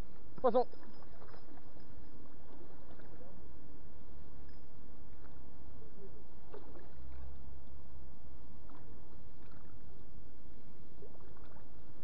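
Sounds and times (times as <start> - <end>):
water splashing and lapping: 0.6 - 3.5, 6.4 - 7.9, 8.5 - 12.0.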